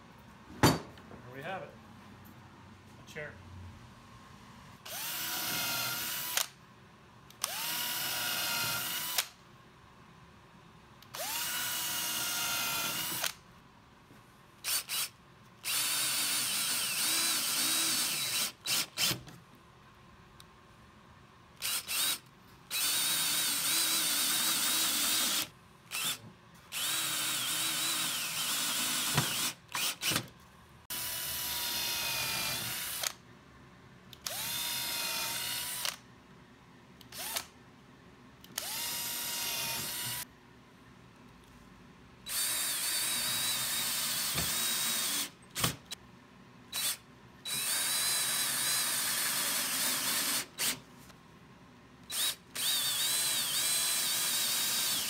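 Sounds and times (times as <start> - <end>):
cordless drill whining: 4.8 - 6.6, 7.4 - 9.3, 11.1 - 13.4, 14.6 - 19.2, 21.6 - 30.2, 30.9 - 33.2, 34.2 - 36.0, 37.1 - 37.5, 38.6 - 40.2, 42.3 - 45.8, 46.7 - 50.8, 52.1 - 55.0.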